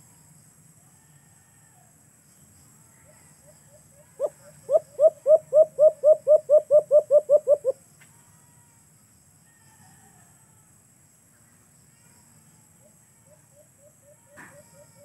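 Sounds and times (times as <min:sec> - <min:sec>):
dove cooing: 0:04.2 - 0:07.8.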